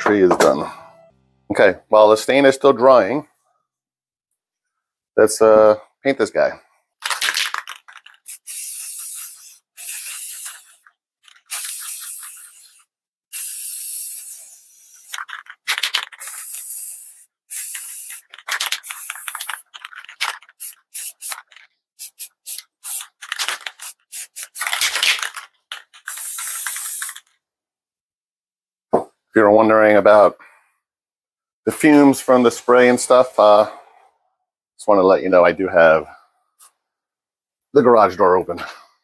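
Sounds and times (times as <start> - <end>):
spray paint can spraying: 7.0 - 27.3.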